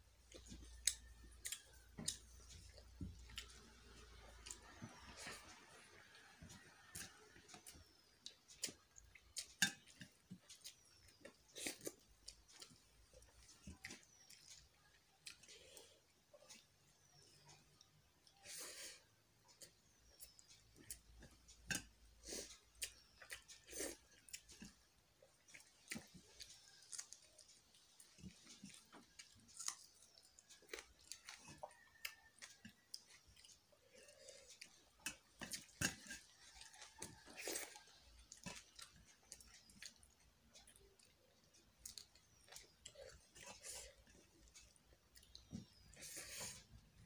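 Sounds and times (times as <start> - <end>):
person chewing wet mouth sounds: 0.3 - 5.7, 6.8 - 18.6, 19.5 - 47.0.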